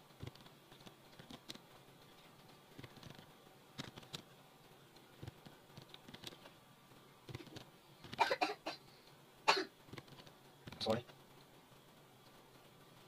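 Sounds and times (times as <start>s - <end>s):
keyboard and mouse clicks: 2.8s - 4.3s, 5.2s - 6.5s.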